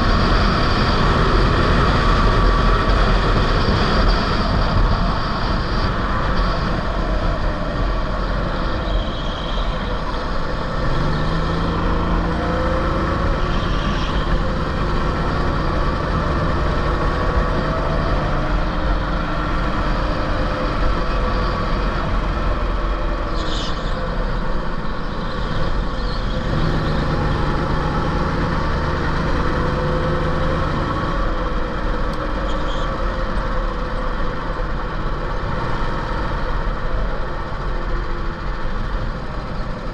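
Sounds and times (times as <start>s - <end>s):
kart engine running: 0.0s - 39.9s.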